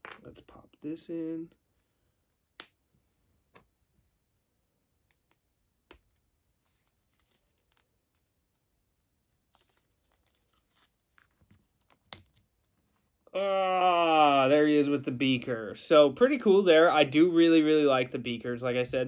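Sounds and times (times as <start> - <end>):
soft plastic rustling: 6.5 - 13.2.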